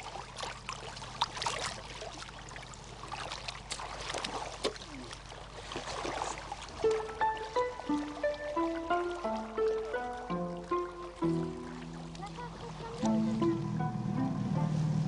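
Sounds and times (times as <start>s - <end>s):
splashing and squelching in mud: 0.0s - 7.2s
simple melody: 6.8s - 15.0s.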